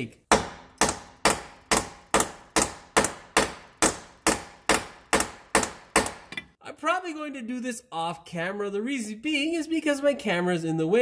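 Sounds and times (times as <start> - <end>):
hammer striking metal bolt: 0.3 - 6.6.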